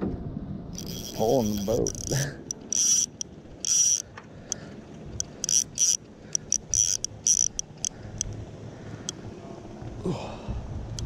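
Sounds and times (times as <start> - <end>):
fly reel click drag buzzing: 0.8 - 4.1, 5.2 - 8.3.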